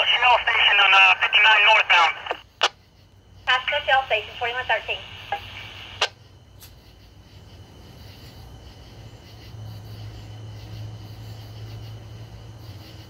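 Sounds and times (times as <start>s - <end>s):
radio squelch click: 0.0s - 2.8s, 3.5s - 6.2s
radio hiss: 0.0s - 6.3s
steady low hum: 0.0s - 13.0s.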